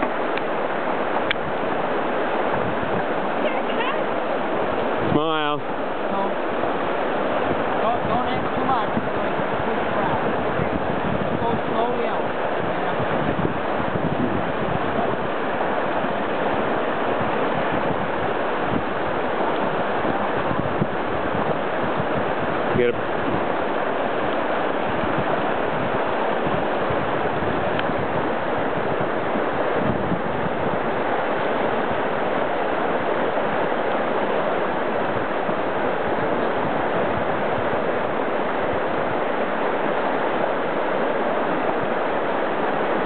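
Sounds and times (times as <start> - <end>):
river rapids rushing: 0.0 - 43.0.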